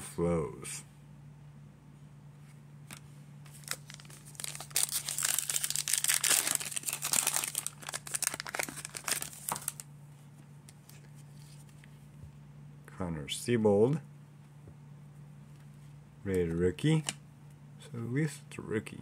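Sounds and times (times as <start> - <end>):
faint low hum: 0.0 - 19.0
card pack wrapper crinkling: 2.9 - 9.9.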